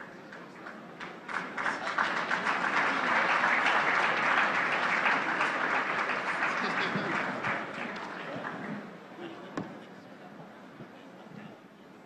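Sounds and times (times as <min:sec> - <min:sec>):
large audience applauding: 0:00.0 - 0:08.7.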